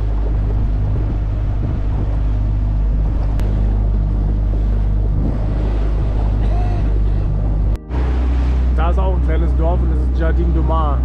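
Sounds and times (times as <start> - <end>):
boat engine droning: 0.0 - 11.0
water rushing along hull: 0.0 - 11.0.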